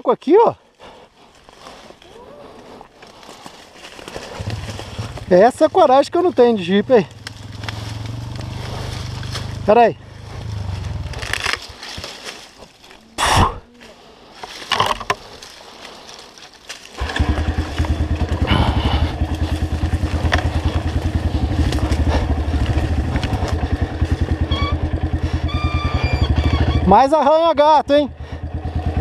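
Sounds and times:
rustling and scraping: 0:01.2 - 0:05.8, 0:07.1 - 0:18.5, 0:19.1 - 0:25.2
dirt bike engine: 0:02.5 - 0:13.6, 0:16.8 - 0:29.0.

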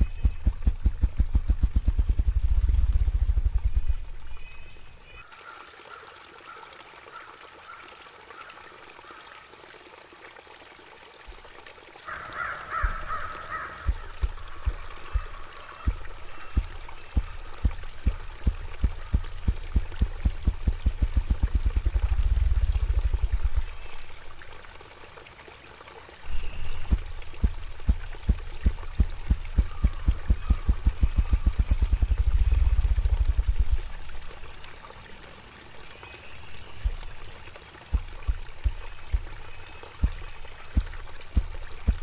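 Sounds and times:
grouse wing-beat drumming: 0:00.0 - 0:04.5, 0:12.7 - 0:24.6, 0:26.3 - 0:34.6, 0:36.5 - 0:42.0.

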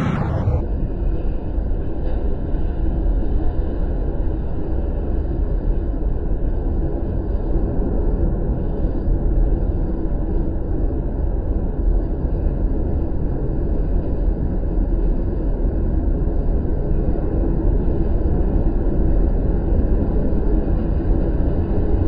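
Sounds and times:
tornado winds rushing: 0:00.0 - 0:00.8.

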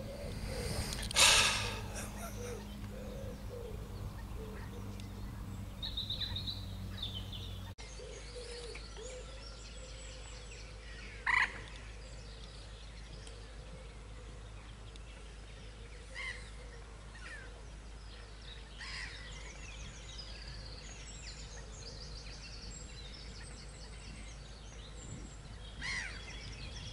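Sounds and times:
steady low hum: 0:00.0 - 0:07.8
birdsong trills and chirps: 0:00.0 - 0:26.9
sharp bird call: 0:00.5 - 0:02.7.

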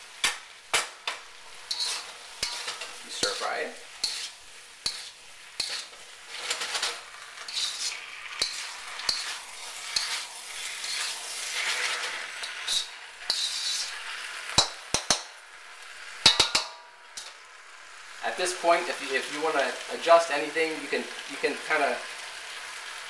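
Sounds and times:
food sizzling in a wok: 0:00.0 - 0:23.0
spatula clanking against wok: 0:00.2 - 0:03.4, 0:04.0 - 0:10.3, 0:14.6 - 0:15.3, 0:16.2 - 0:17.3
metal spatula scraping a wok: 0:00.2 - 0:15.2.

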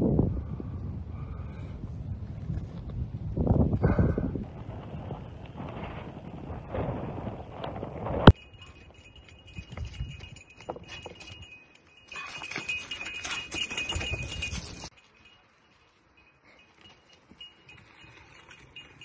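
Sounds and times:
tyres rattling over rocky trail: 0:04.4 - 0:16.0, 0:16.6 - 0:19.0
high ringing tone: 0:08.3 - 0:19.0.

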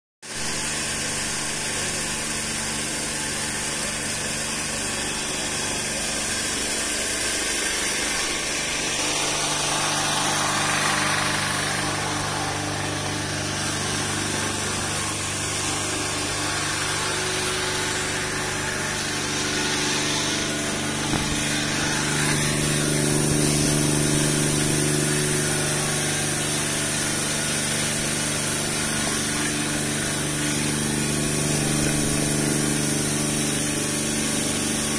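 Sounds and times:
pump motor hum: 0:00.3 - 0:34.9
spray nozzles hissing: 0:16.0 - 0:33.5.

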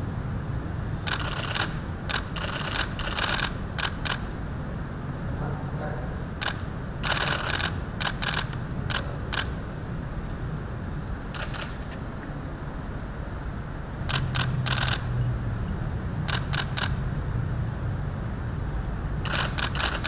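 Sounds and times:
camera shutters clicking: 0:01.0 - 0:04.4, 0:06.4 - 0:09.6, 0:11.3 - 0:12.0, 0:14.1 - 0:15.1, 0:16.3 - 0:17.0, 0:19.2 - 0:20.0.

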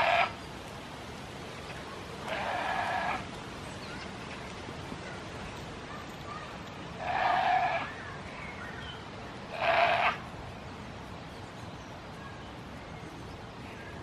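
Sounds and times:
goat bleating: 0:02.3 - 0:03.2, 0:07.0 - 0:07.9, 0:09.5 - 0:10.2.

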